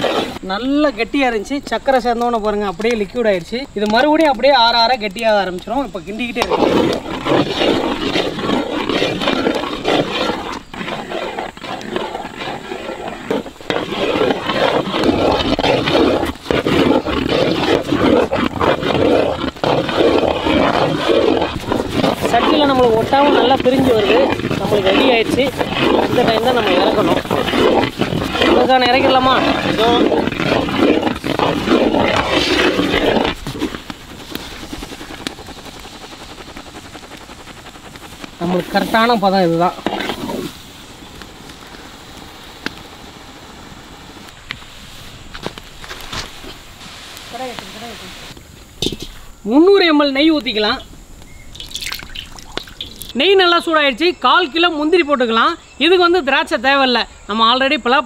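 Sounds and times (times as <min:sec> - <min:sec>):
thick mass squelching: 0:00.0 - 0:00.5, 0:06.0 - 0:40.6, 0:50.6 - 0:53.2
metal ladle scraping pot: 0:05.5 - 0:34.4, 0:50.6 - 0:53.2
loud rough roar: 0:06.4 - 0:33.7.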